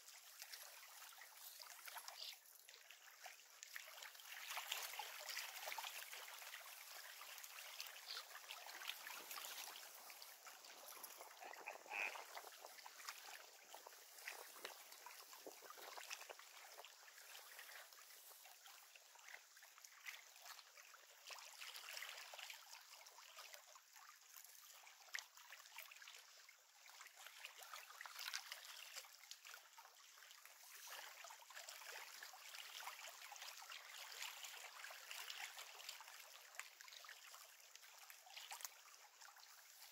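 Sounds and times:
water lapping at shore: 0.0 - 39.9
small ticks: 13.8 - 16.8.

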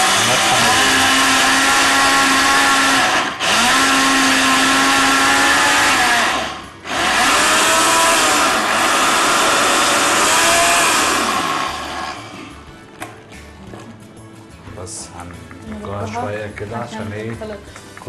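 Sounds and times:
electric spice grinder whining: 0.0 - 12.7.

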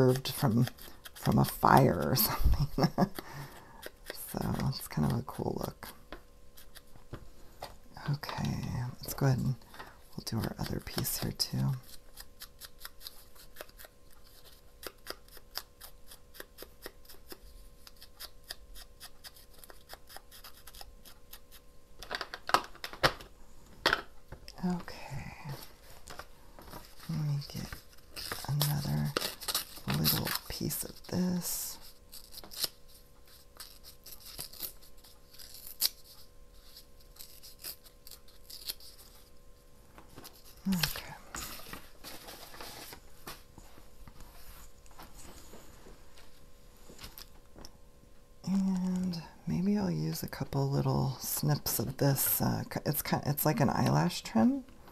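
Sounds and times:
scissors snipping paper: 0.0 - 6.9, 10.2 - 21.6, 27.3 - 39.3
paper rustling: 40.0 - 45.1.

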